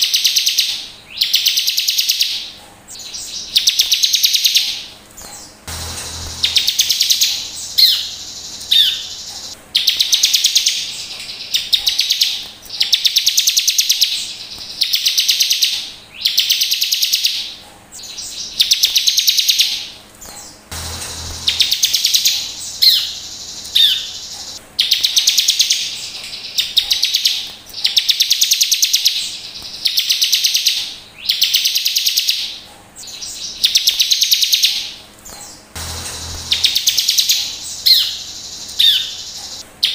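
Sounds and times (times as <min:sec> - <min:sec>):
bird buzzy rapid trills: 0:01.2 - 0:32.4, 0:33.0 - 0:39.9
sharp short bird notes: 0:05.2 - 0:10.2, 0:20.3 - 0:25.2, 0:35.4 - 0:39.6.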